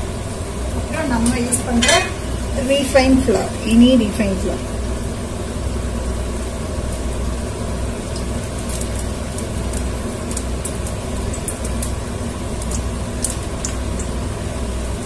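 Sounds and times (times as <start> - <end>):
oil crackling in a pot: 0.0 - 15.0.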